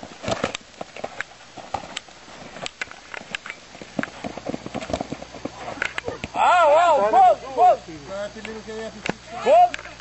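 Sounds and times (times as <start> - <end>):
running footsteps on grass: 0.0 - 6.3.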